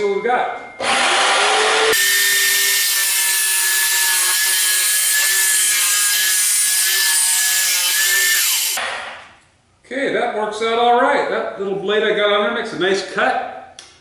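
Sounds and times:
jigsaw motor whine: 0:00.8 - 0:03.0
saw blade cutting plywood: 0:00.8 - 0:09.0.

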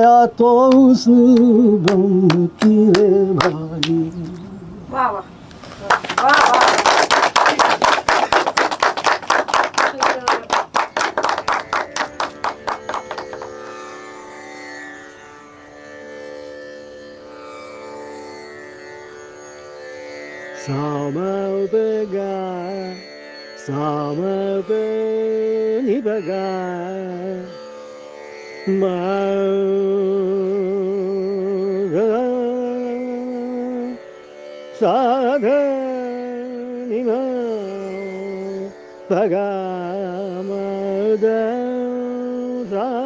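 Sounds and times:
man singing ornamented phrases: 0:00.0 - 0:04.8.

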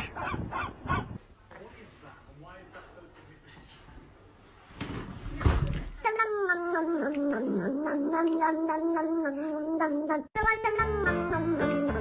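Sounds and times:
cat yowling: 0:06.0 - 0:12.0.

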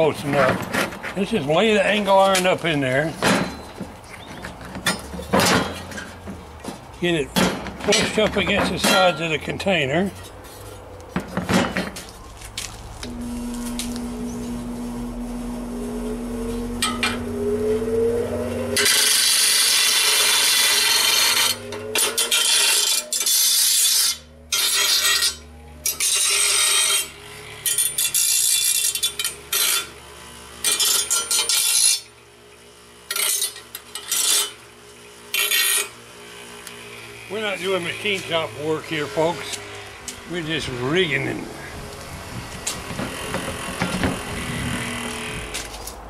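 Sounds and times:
bench grinder motor hum: 0:12.3 - 0:46.0
harsh grinding of steel blade: 0:13.0 - 0:32.1, 0:33.0 - 0:34.7, 0:35.3 - 0:42.0.

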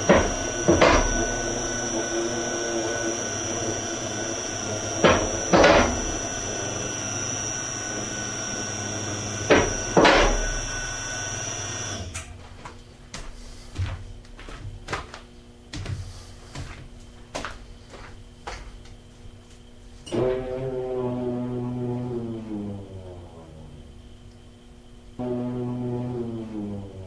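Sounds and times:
lift table running noise: 0:00.0 - 0:12.6, 0:20.0 - 0:24.5.

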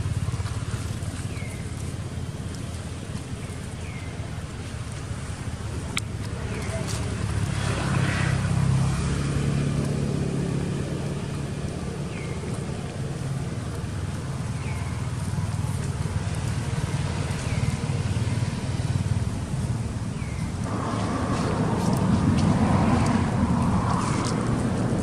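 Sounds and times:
passing vehicle engine drone: 0:05.8 - 0:25.0.

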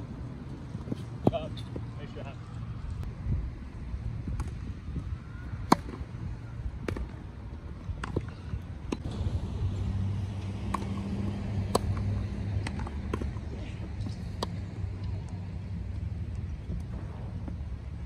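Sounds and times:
tennis ball hit by rackets: 0:05.6 - 0:06.0, 0:10.4 - 0:14.6
low rumble: 0:09.0 - 0:18.0.

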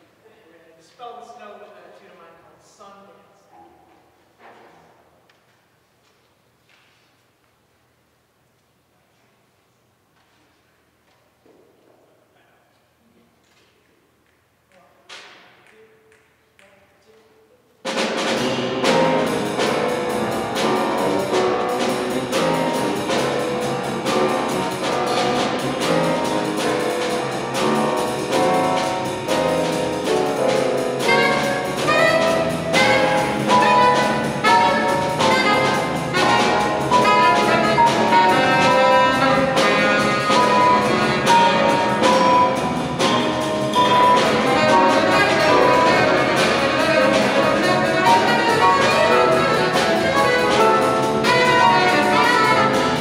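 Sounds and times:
drum kit: 0:17.8 - 0:53.0
piano: 0:17.8 - 0:53.0
double bass: 0:17.9 - 0:53.0
saxophone melody: 0:18.4 - 0:53.0.

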